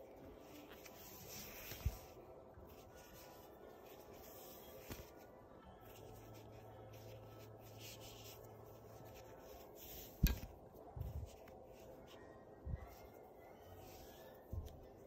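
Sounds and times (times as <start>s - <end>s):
cord rubbing through fingers: 0.1s - 15.0s.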